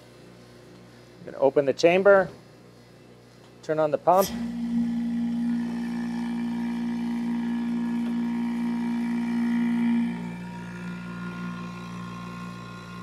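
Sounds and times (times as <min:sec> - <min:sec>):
vacuum pump humming: 0:03.6 - 0:13.0.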